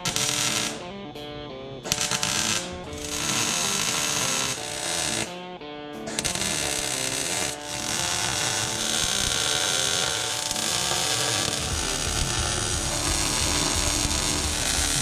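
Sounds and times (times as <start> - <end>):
welder buzzing crackle: 0.0 - 1.2, 1.8 - 5.4, 6.0 - 15.0
background music: 0.0 - 15.0.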